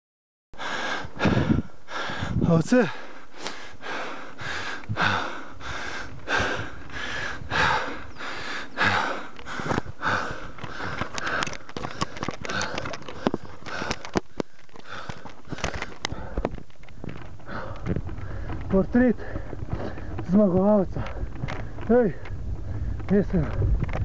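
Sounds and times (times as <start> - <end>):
heavy rhythmic panting: 0.6 - 23.1
camera handling clicks and knocks: 10.6 - 18.7.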